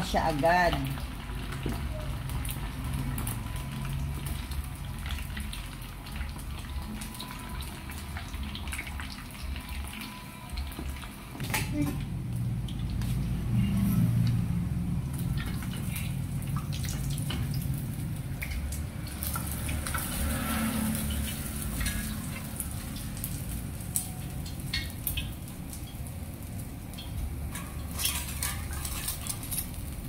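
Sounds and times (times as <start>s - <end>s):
oil crackling and sputtering: 12.3s - 25.8s.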